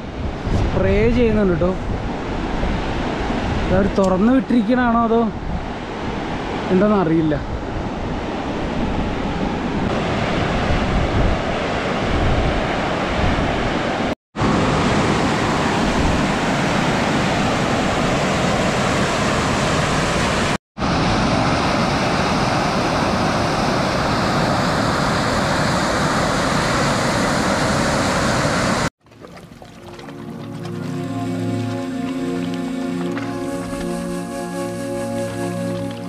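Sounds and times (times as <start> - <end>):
water rushing from dam outlet: 9.9 - 36.0.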